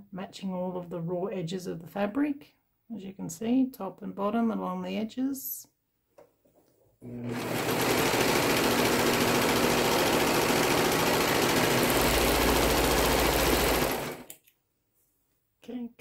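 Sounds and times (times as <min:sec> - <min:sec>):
overlocker sewing machine running: 0:07.1 - 0:14.3.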